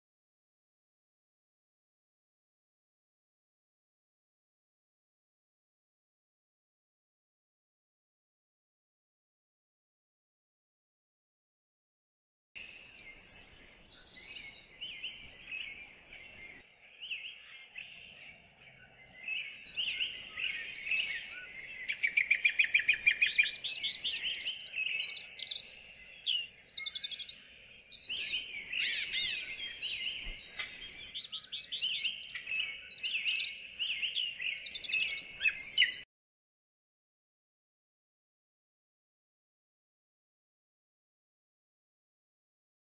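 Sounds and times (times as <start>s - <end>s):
songbirds chirping and singing: 12.6s - 36.1s.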